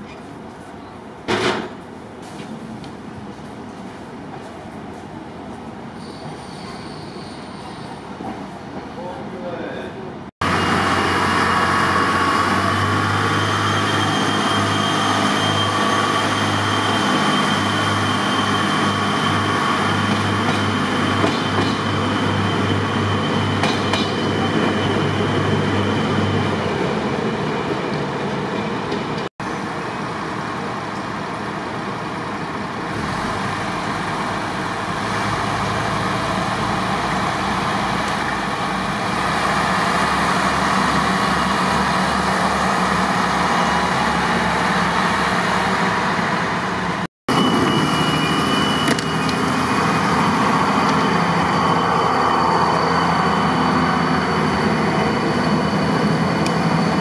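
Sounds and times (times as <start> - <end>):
railcar engine drone: 0.0 - 57.0
wheel and track noise: 46.5 - 57.0.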